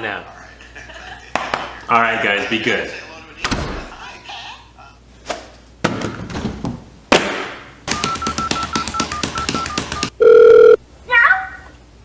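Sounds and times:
toy telephone rapid clicking: 7.9s - 10.1s
broken beeping tone: 7.9s - 10.8s
loud steady electronic beep: 8.0s - 10.8s.

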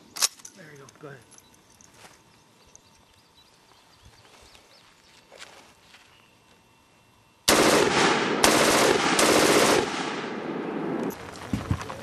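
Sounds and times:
machine gun firing automatic bursts: 7.5s - 10.4s.

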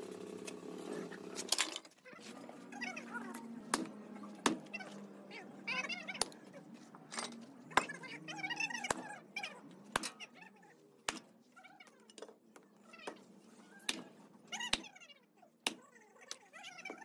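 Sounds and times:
wavering meow-like calls: 2.6s - 6.7s, 12.8s - 17.0s.

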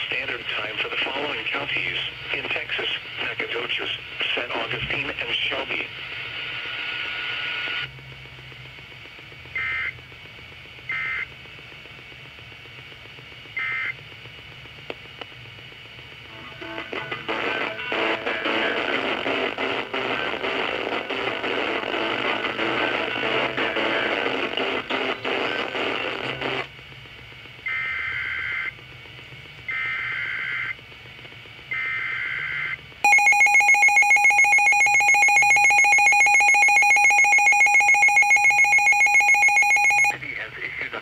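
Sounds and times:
radio station music: 0.0s - 7.9s, 16.2s - 26.7s, 33.1s - 41.0s
data tone bursts: 33.1s - 40.2s
two-tone alert signal: 33.1s - 40.2s.

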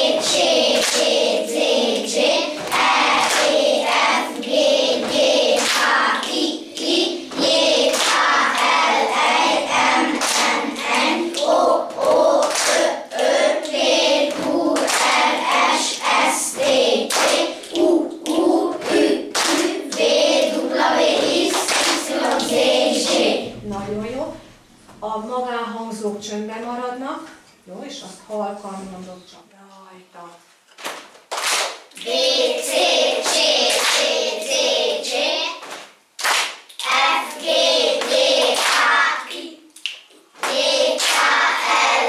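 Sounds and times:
children chanting: 0.0s - 23.6s, 32.0s - 35.6s, 36.8s - 39.7s, 40.4s - 42.0s
children clapping: 0.1s - 23.3s, 30.8s - 34.6s, 35.5s - 42.0s.

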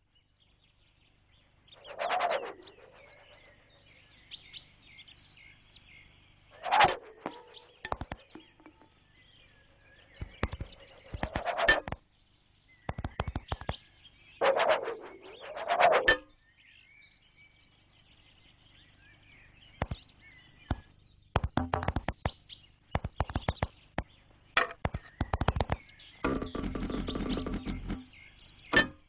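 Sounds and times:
faint high bird chirps: 0.0s - 29.0s
quick clicks and knocks: 6.7s - 8.9s, 21.4s - 22.4s, 23.0s - 28.1s.

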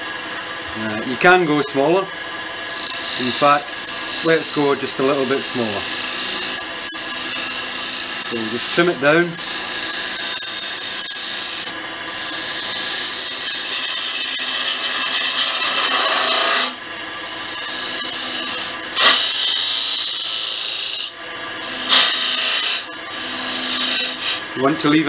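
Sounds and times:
gouge cutting wood on lathe: 2.7s - 24.8s.

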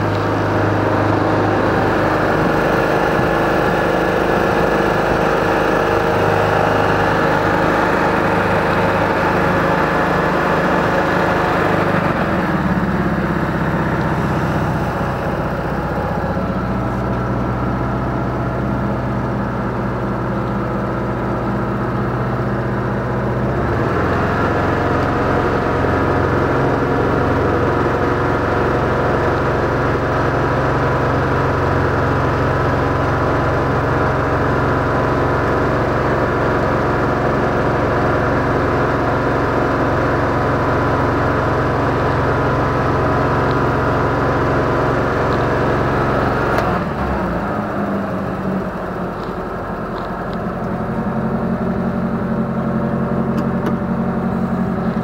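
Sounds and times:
motorboat engine running: 0.0s - 55.0s.

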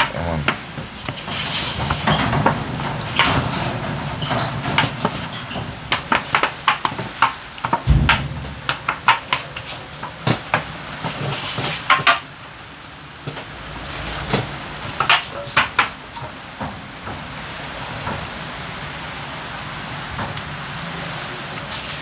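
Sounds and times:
heavy dull thump: 7.8s - 9.6s.

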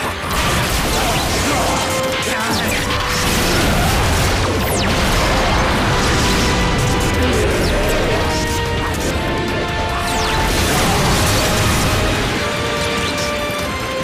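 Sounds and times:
dramatic music: 0.0s - 14.0s
explosion and impact effects: 3.0s - 12.5s.

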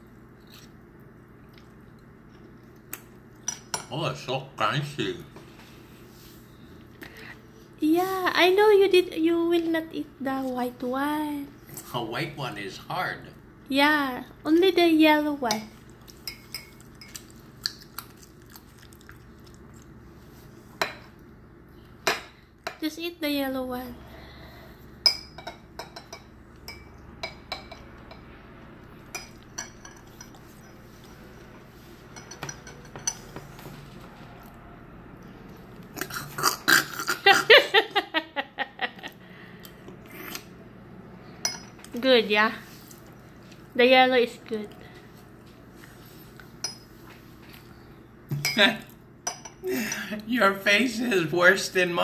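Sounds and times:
quiet chewing: 0.3s - 3.5s, 15.8s - 20.6s
person laughing: 37.1s - 39.2s.

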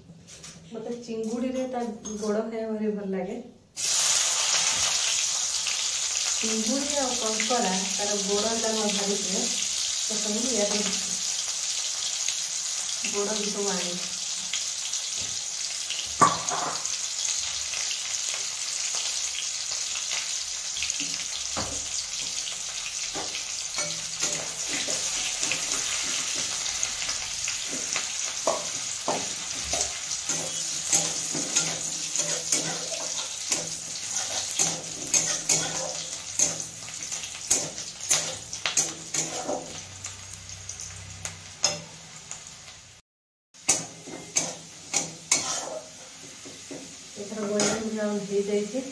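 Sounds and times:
oil sizzling in a pan: 3.8s - 43.0s, 43.6s - 48.9s
metal spatula scraping a pan: 23.1s - 26.7s, 27.6s - 40.0s, 43.7s - 46.8s, 47.4s - 48.0s.

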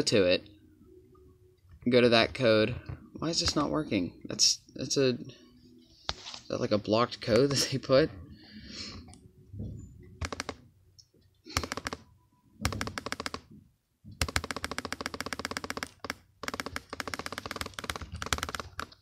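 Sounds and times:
laptop keyboard typing: 10.2s - 10.6s, 11.5s - 13.5s, 14.2s - 19.0s.

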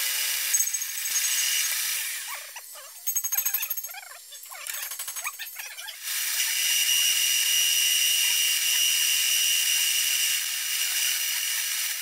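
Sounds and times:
milling cutter whining on metal: 0.0s - 2.8s.

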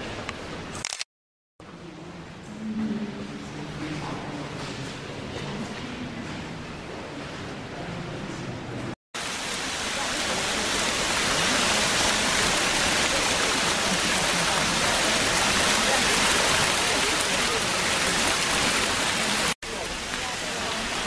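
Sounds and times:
fountain water rushing and splashing: 9.2s - 21.0s.

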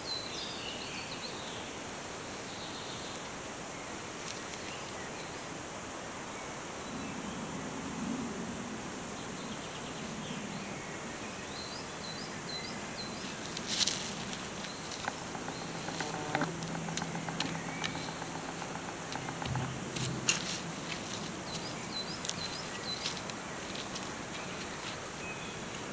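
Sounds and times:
low steady hum: 12.8s - 25.9s
tent fabric rustling: 13.3s - 25.9s
bird chirps: 14.2s - 20.2s.

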